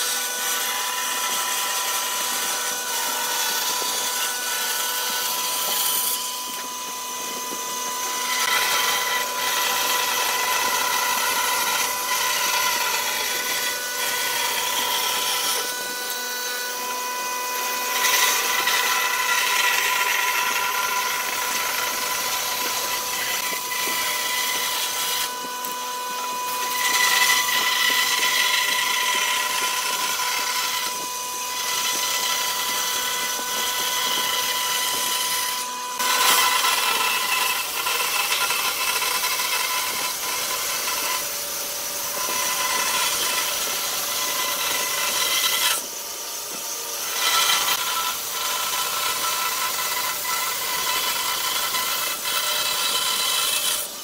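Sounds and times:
band saw cutting wood: 0.0 - 54.0.

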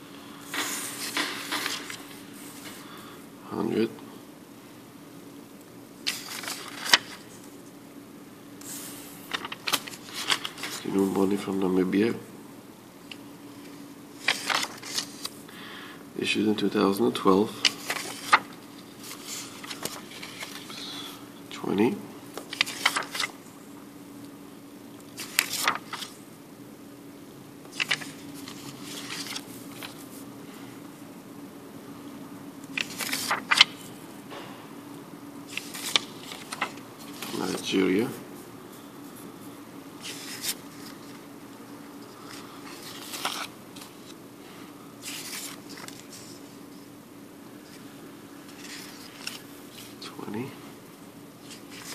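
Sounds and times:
steady low hum: 0.0 - 51.9
banknote rustling and crinkling: 6.0 - 7.6, 8.6 - 11.4, 13.1 - 15.4, 17.2 - 20.8, 21.7 - 23.5, 25.1 - 26.2, 27.7 - 30.2, 32.7 - 34.0, 35.5 - 37.8, 40.0 - 41.2, 41.9 - 44.2, 45.0 - 46.9, 48.4 - 50.5, 51.4 - 51.9.

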